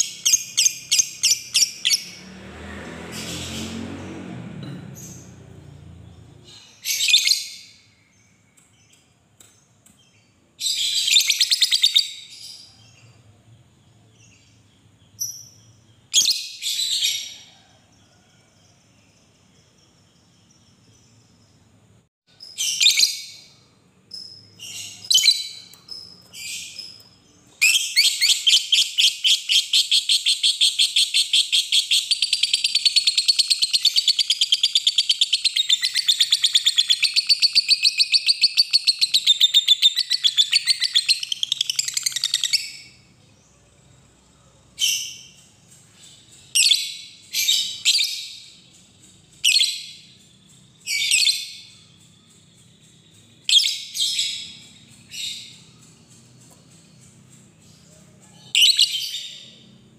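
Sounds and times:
lovebird chirping and chattering: 0.0s - 2.2s, 6.0s - 9.0s, 10.0s - 13.1s, 22.4s - 43.0s, 44.7s - 59.8s.

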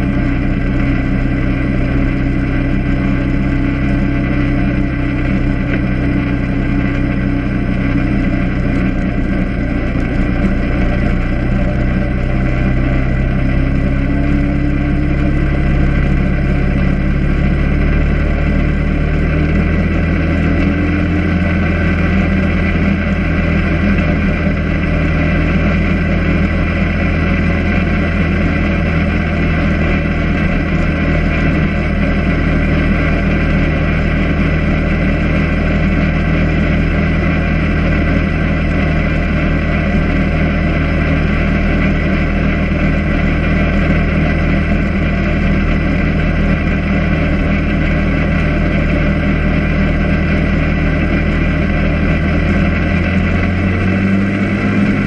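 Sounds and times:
atv engine running: 0.0s - 55.0s.

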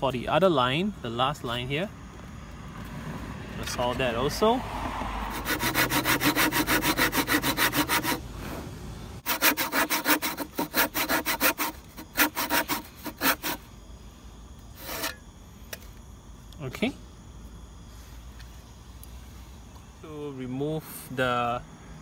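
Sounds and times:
hand saw cutting wood: 5.2s - 8.2s, 9.2s - 13.6s, 14.8s - 15.2s.

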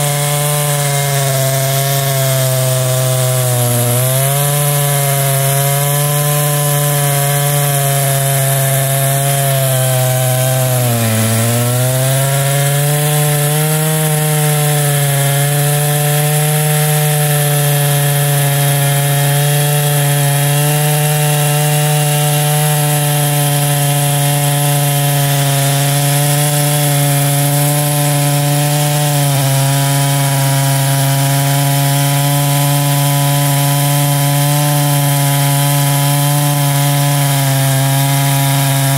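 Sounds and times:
chainsaw cutting log: 0.0s - 38.9s.

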